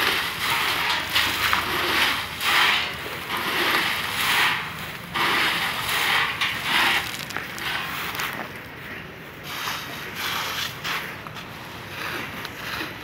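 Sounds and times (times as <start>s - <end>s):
peanuts rattling into a sack: 5.8s - 8.4s.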